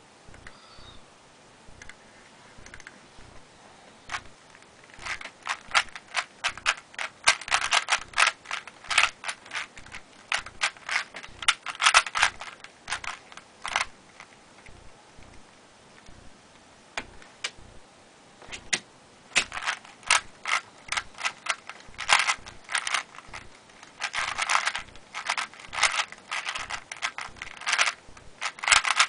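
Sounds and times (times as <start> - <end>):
plastic puzzle cube layers clacking: 2.6 - 3.0, 4.1 - 15.4, 18.5 - 29.0.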